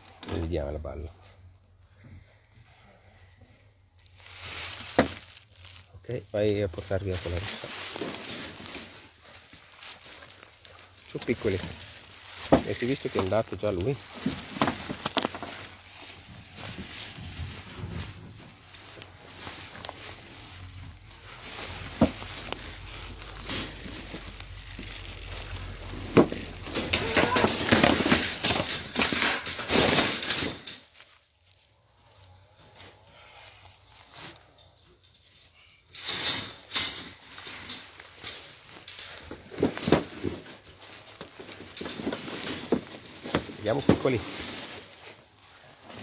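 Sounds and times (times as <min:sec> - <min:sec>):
animal rustling in straw: 0:04.0 - 0:27.4, 0:30.8 - 0:34.6
footsteps crunching through dry leaves: 0:04.0 - 0:28.1, 0:30.7 - 0:34.6, 0:37.2 - 0:46.0.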